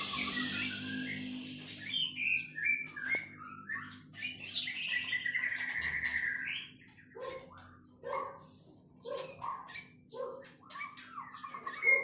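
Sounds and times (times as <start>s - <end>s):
songbird chirping and whistling: 0.0s - 6.7s, 10.6s - 12.0s.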